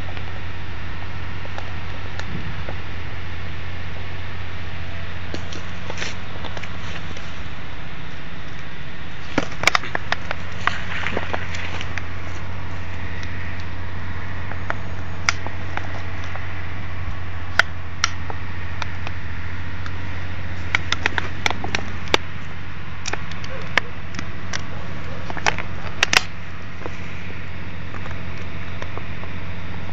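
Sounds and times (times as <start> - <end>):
steady low hum: 0.0 - 29.9.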